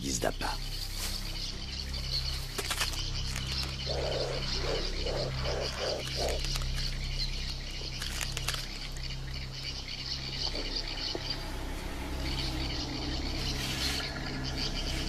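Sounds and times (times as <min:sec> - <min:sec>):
steady low hum: 0:00.6 - 0:15.0
short low croaking calls: 0:01.6 - 0:09.2.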